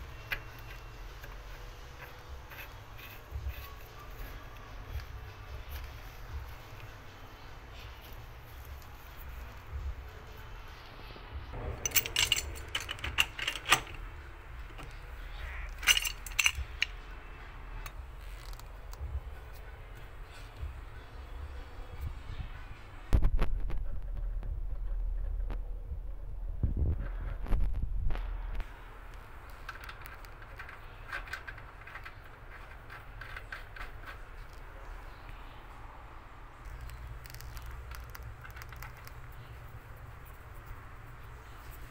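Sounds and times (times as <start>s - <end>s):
metal threads clicking and scraping: 0.0s - 10.5s, 11.6s - 20.7s, 29.1s - 35.4s, 36.6s - 41.9s
pipe wrench clinking on metal: 11.6s - 14.1s, 15.6s - 17.0s.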